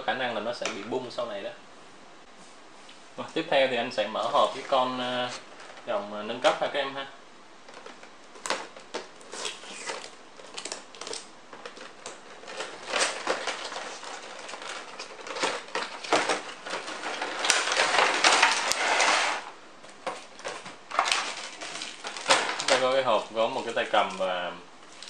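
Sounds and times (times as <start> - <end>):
plastic crinkling: 7.6 - 25.0.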